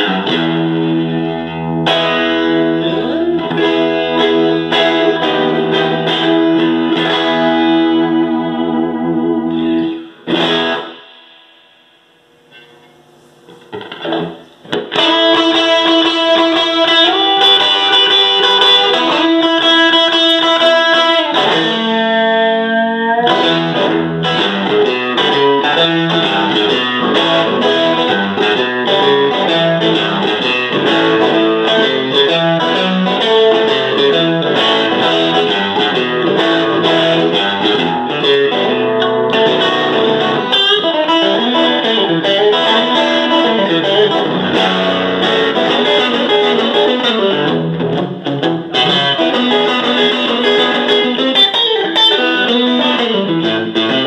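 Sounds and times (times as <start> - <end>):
electric guitar playing: 0.0 - 54.0.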